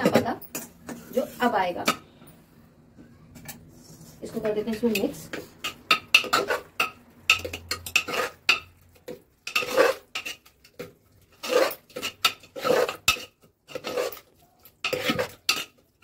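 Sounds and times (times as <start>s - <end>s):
metal spoon scraping pot: 3.4s - 16.0s.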